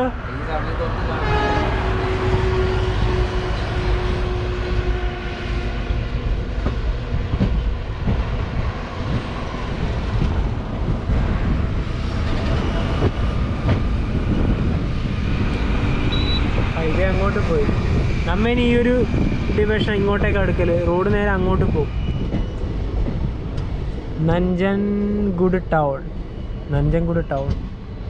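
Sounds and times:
train wheels rumbling on rail: 0.4 - 28.0
rushing air: 5.7 - 24.2.

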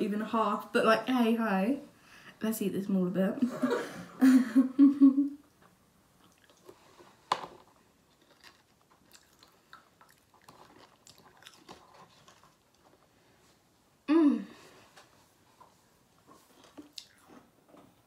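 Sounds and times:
chewing crunchy cheese puffs: 6.2 - 13.2, 16.4 - 17.6.

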